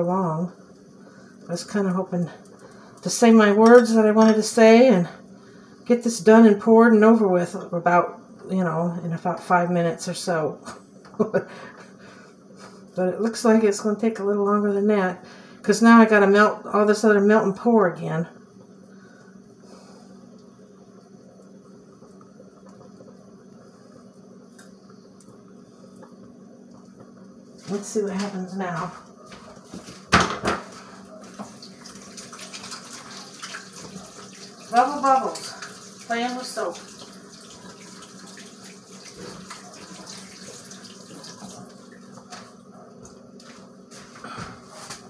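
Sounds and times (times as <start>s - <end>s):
tap water running into sink: 31.2s - 42.6s.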